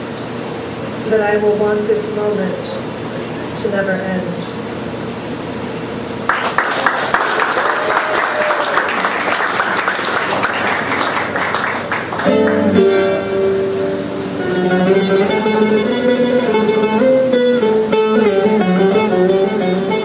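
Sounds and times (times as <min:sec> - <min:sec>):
audience applauding: 0:06.2 - 0:13.0
plucked lute melody: 0:12.2 - 0:20.0.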